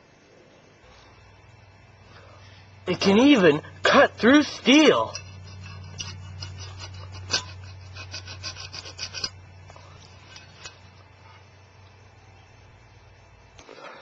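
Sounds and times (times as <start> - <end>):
knife blade sawing against steel: 4.7 - 9.4.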